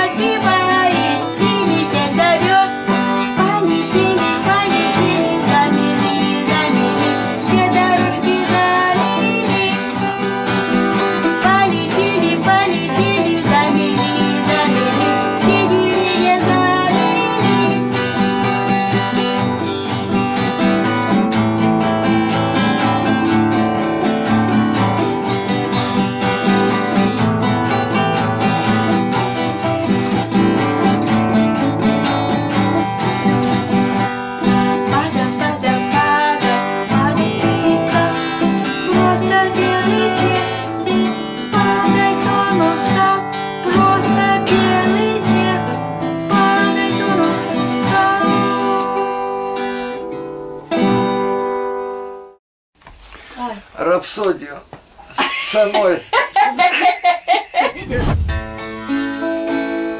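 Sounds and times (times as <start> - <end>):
woman singing: 0.0 - 19.3, 34.4 - 49.3
acoustic guitars playing: 0.0 - 52.4, 55.6 - 59.9.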